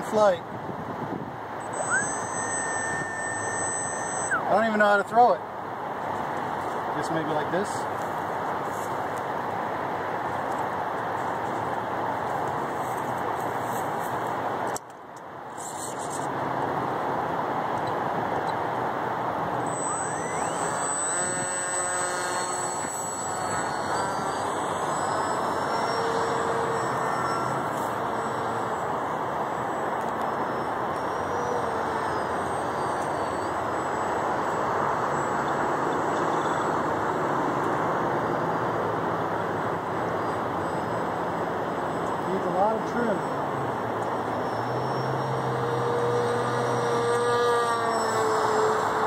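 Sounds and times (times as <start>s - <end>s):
steady rushing noise: 0.0s - 31.3s
electric motor whine: 1.6s - 4.6s, 19.5s - 37.2s, 44.0s - 49.0s.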